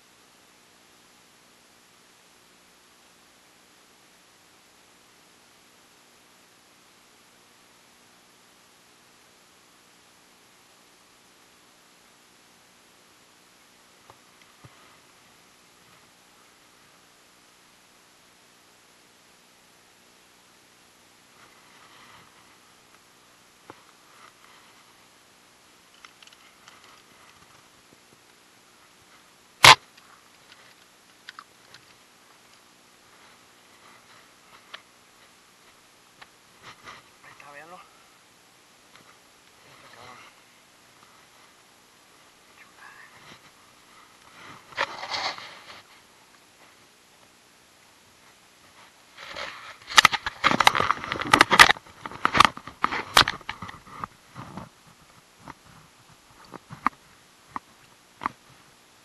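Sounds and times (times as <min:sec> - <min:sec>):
faint clicks and knocks: 0:25.9 - 0:28.4, 0:29.0 - 0:32.7.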